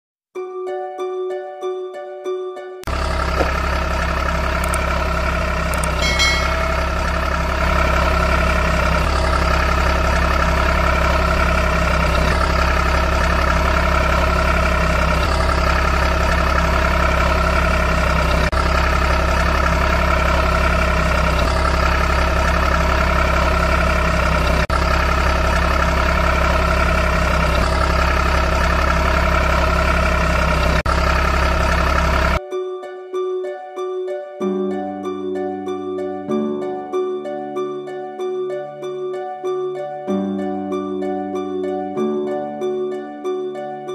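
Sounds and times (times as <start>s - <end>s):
truck engine idling: 2.8s - 32.4s
high chime: 5.8s - 7.1s.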